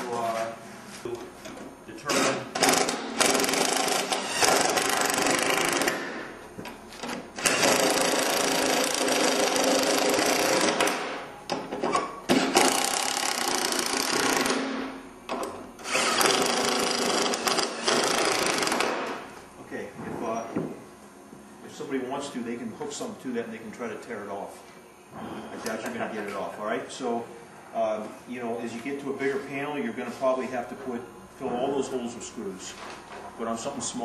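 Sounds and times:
cordless drill driving screws: 7.4 - 10.9, 15.8 - 18.9.

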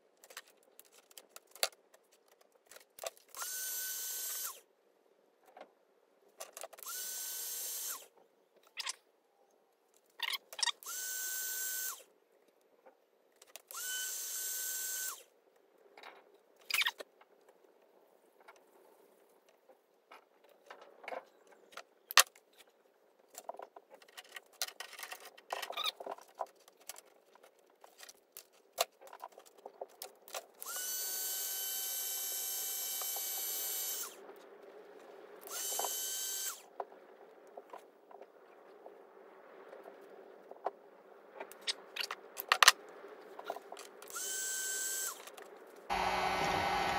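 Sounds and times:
tools handled on wooden workbench: 23.3 - 30.5
power tool whining: 30.6 - 34.2, 35.5 - 36.6, 44.1 - 45.2, 45.9 - 46.9.

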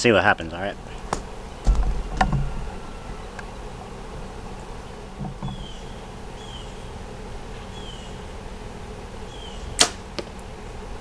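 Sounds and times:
buzzing insects: 0.0 - 11.0
camera handling rumble and knocks: 1.1 - 2.5.

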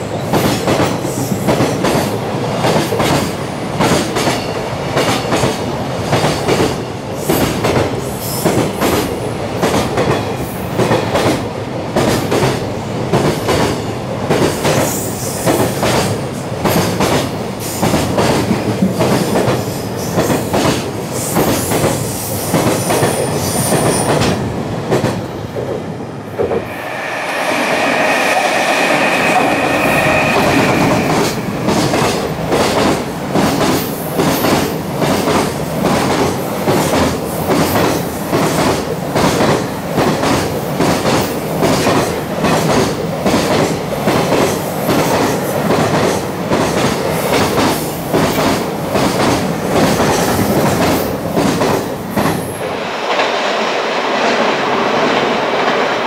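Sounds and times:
high steady whine: 26.5 - 31.8.

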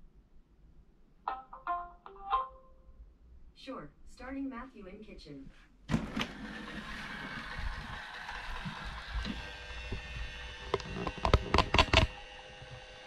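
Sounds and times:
robot vacuum motor humming: 6.0 - 13.0
sharp clicks and knocks: 9.2 - 12.2.

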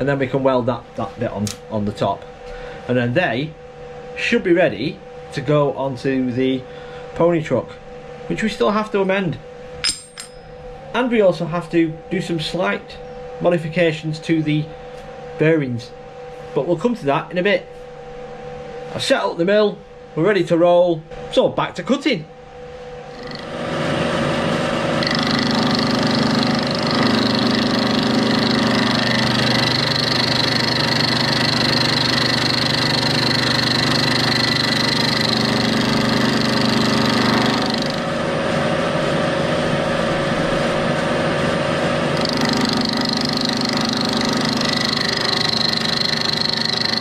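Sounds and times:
milling machine motor hum: 22.9 - 47.0
end mill cutting steel: 23.1 - 38.2, 42.0 - 47.0.

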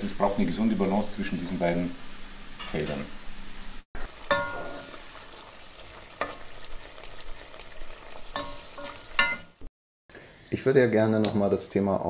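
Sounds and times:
food sizzling in a frying pan: 0.0 - 9.7
utensil clinking on pan: 4.3 - 4.9, 8.3 - 9.6.

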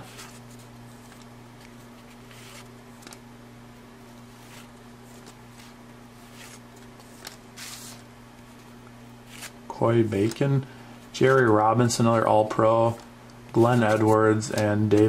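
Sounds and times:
cards sliding against each other: 0.0 - 3.2, 4.3 - 8.1, 9.3 - 10.4
steady low hum: 0.0 - 15.0.

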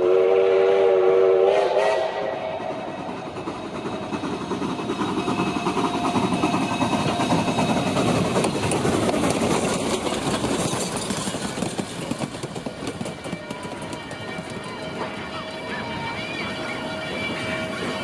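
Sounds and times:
steam train passing: 0.0 - 18.0
rattle of wheels: 3.4 - 15.1.

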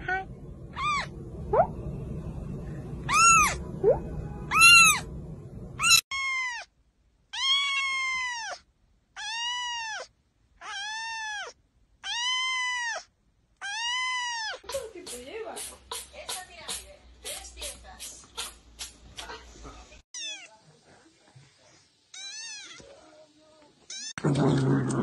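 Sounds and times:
cat meowing long: 3.1 - 3.6, 4.5 - 5.0, 7.4 - 8.6, 9.2 - 13.0
kitten meowing high: 3.1 - 3.6, 4.5 - 5.0, 5.8 - 6.7, 7.4 - 8.6, 9.2 - 14.6.

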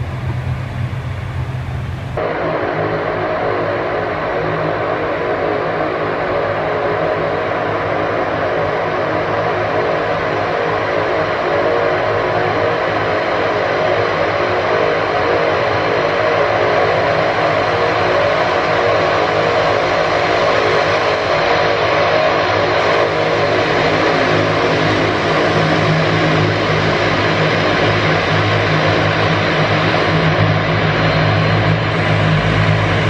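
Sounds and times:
low drone: 0.0 - 33.0
propeller aircraft engines: 0.0 - 33.0.

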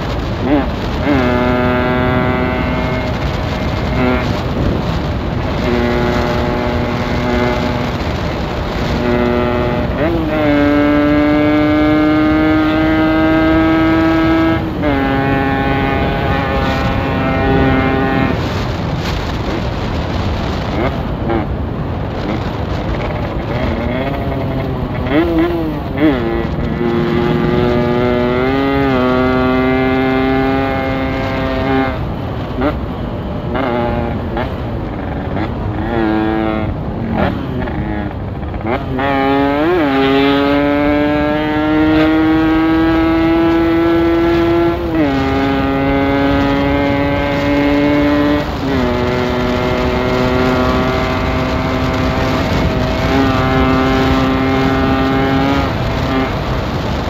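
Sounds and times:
motorcycle engine at speed: 0.0 - 57.0
wind rushing over microphone: 0.0 - 57.0.

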